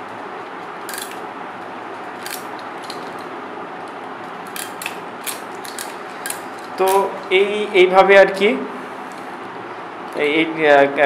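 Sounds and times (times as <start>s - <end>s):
crimping tool clicking: 0.9s - 1.2s, 2.2s - 3.1s, 4.5s - 7.1s.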